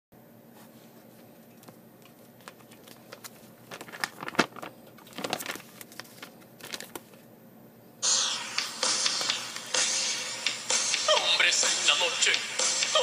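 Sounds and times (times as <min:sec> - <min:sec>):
crinkling rustles: 0:00.6 - 0:07.3.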